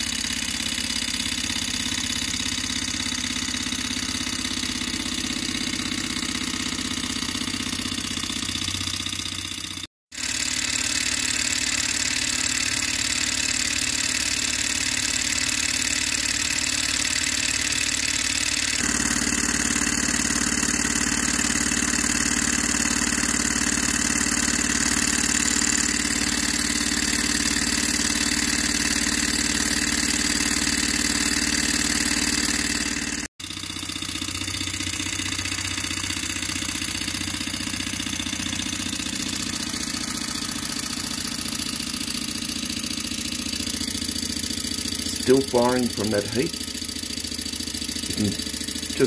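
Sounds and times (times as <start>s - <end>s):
hot-air engine running: 10.2s - 49.0s.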